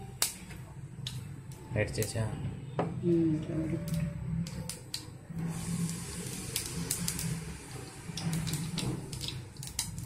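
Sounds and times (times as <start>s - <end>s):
seeds sizzling in hot oil: 4.4s - 10.0s.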